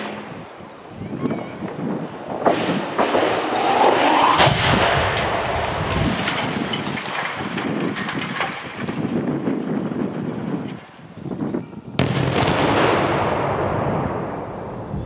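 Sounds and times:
sharp cracks: 0.0s - 10.3s
concrete tower crashing down: 1.8s - 10.0s.

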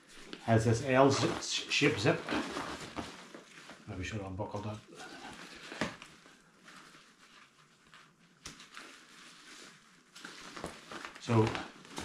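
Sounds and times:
fabric rustling: 0.0s - 12.0s.

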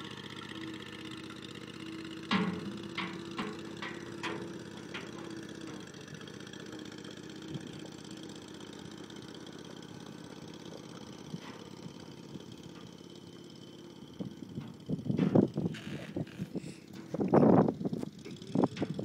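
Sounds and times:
engine idling: 0.0s - 19.0s
hooves knocking on steel bed: 2.2s - 6.0s.

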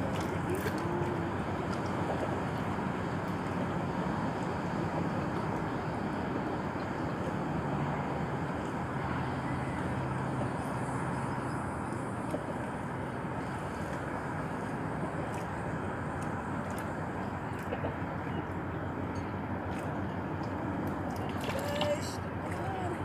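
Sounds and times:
faint low engine hum: 0.0s - 23.0s.

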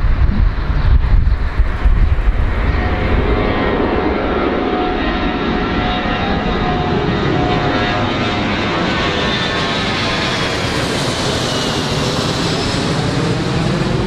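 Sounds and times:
jet airliner taking off overhead: 0.0s - 14.0s.

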